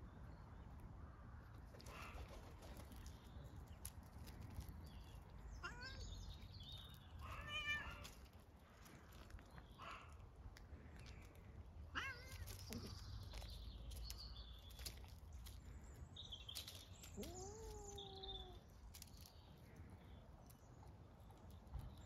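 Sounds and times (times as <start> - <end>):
cat meowing: 7.3 - 8.1, 11.9 - 12.5.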